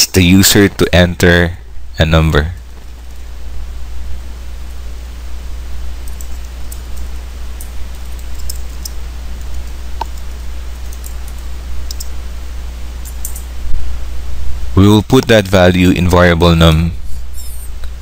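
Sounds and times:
low hum and hiss: 0.0 - 18.0
keyboard keys clicking: 6.0 - 12.1.

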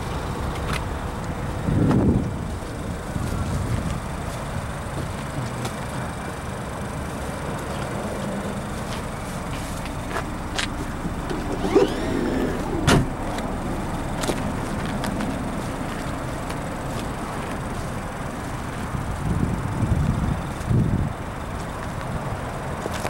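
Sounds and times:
liftgate motor whine: 11.1 - 13.4
liftgate shutting thud: 11.3 - 13.2.

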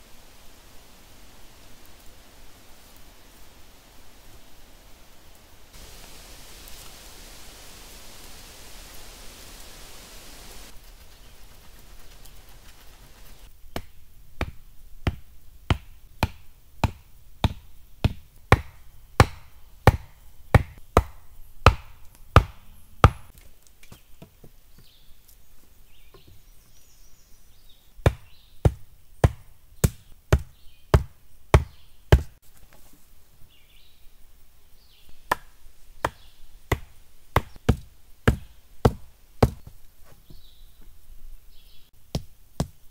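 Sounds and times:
wooden posts being pounded: 13.7 - 23.3, 28.0 - 32.4, 35.3 - 39.7.

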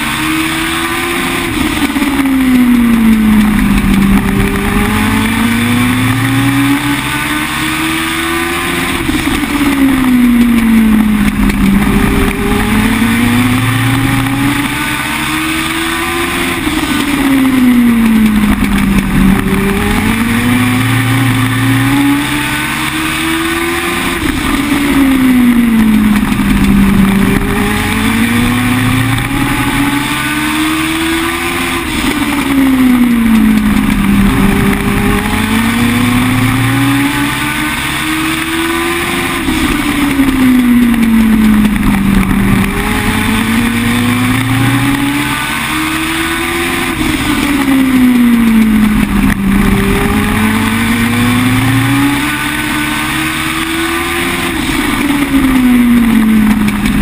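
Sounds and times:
race car engine accelerating: 0.0 - 57.0.

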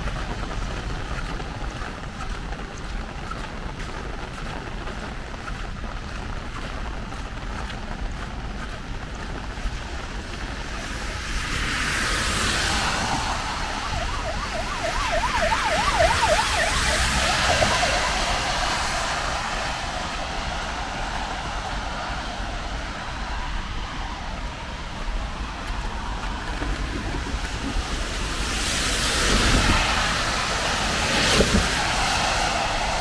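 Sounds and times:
traffic on wet road: 0.0 - 33.0
siren yelping: 12.7 - 19.5.

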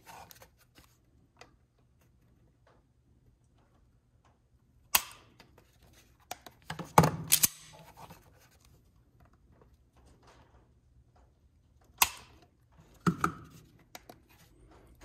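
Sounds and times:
pistol slide clacking: 7.2 - 7.8.

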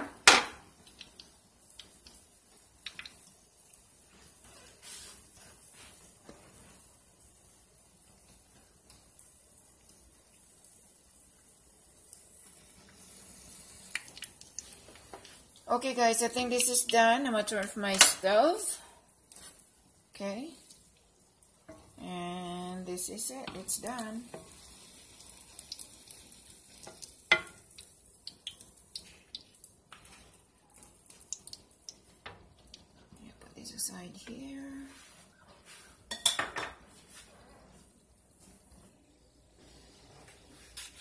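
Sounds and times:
hot oil sizzling in a pan: 0.0 - 35.0
metal spoon clinking on a pan: 36.1 - 36.7.

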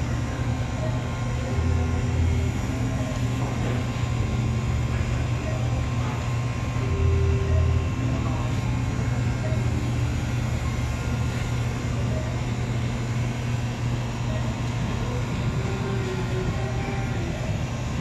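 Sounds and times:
faint voices: 0.0 - 18.0
low background hum: 0.0 - 18.0.

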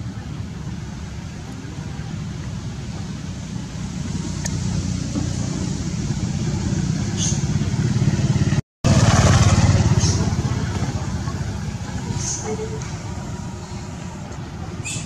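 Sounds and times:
low engine rumble: 0.0 - 15.0
faint high chirp: 14.8 - 15.0.

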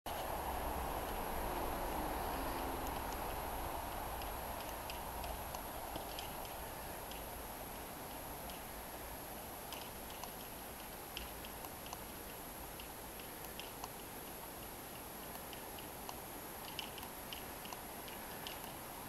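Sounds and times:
small ticks and chirps: 2.4 - 7.4, 9.4 - 18.9.

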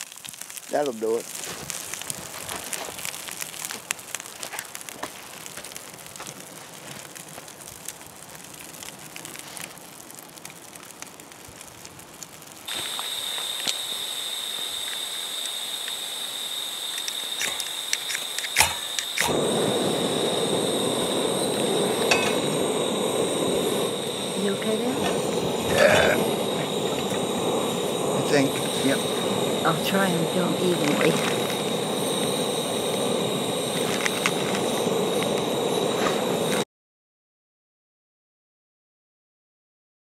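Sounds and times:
campfire crackling and popping: 0.0 - 36.6
gas stove burner hissing: 0.3 - 36.6
steady high whine: 12.7 - 36.6
sharp clicks: 16.9 - 19.4.

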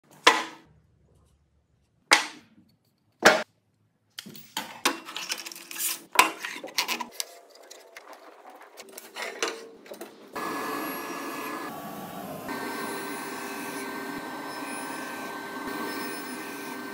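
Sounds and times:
saw parts clattering: 4.2 - 7.4
woodworking machine humming: 10.3 - 16.9.

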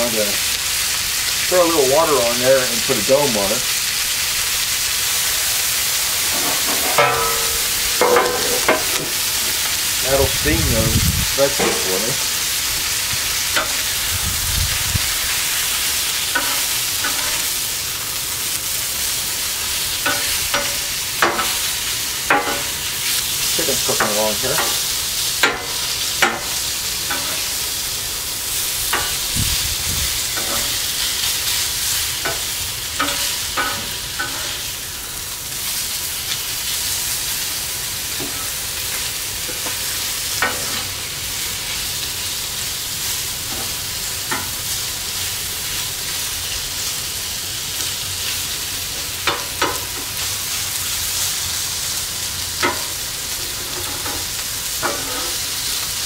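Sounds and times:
chicken sizzling on a griddle: 0.0 - 56.0
metal spatula scraping griddle: 6.0 - 12.2, 16.0 - 17.6, 25.4 - 27.6, 30.2 - 31.6, 32.2 - 34.7, 52.6 - 55.8.

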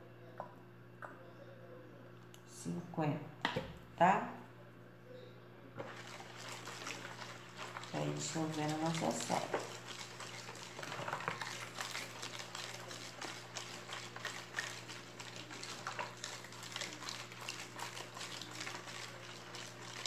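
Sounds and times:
plastic spoon scraping basin: 5.8 - 20.0.

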